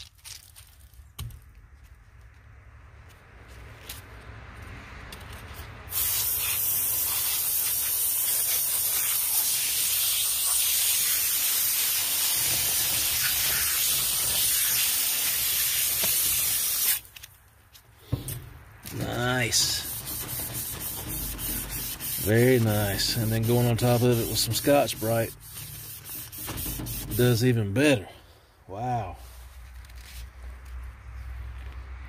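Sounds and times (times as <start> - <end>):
water jet spraying on metal: 5.9 - 17.0, 19.5 - 27.4.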